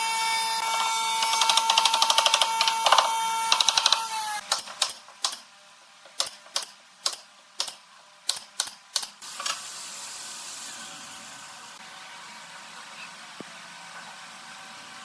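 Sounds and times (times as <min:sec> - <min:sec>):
nail gun snaps: 0:01.2 - 0:05.4, 0:06.2 - 0:09.2.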